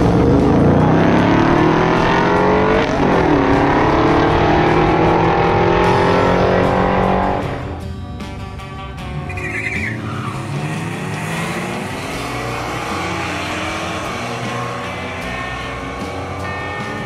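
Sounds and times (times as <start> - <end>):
car engine revving: 0.0 - 7.9, 9.0 - 17.0
background music: 0.0 - 17.0
tyre squeal: 9.3 - 11.5.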